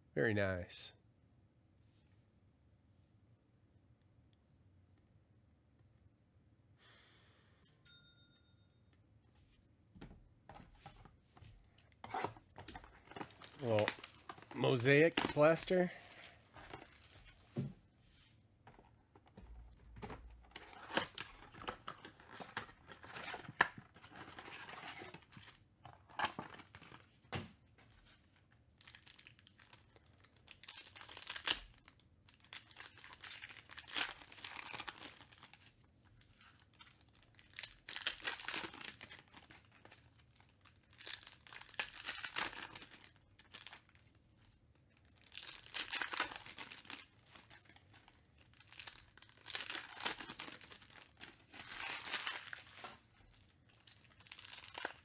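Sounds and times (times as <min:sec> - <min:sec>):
foil packs tearing and crinkling: 0:12.2 - 0:17.4, 0:28.8 - 0:44.0, 0:45.0 - 0:55.0.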